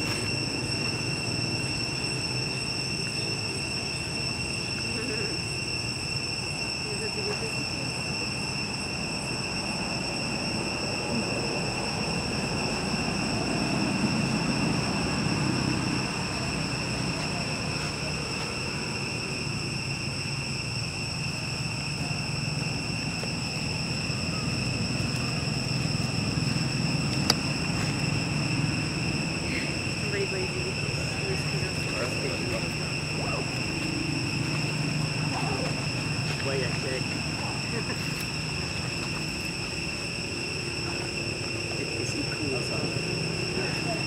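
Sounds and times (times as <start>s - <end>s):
high-pitched insect drone: 0.0s - 44.0s.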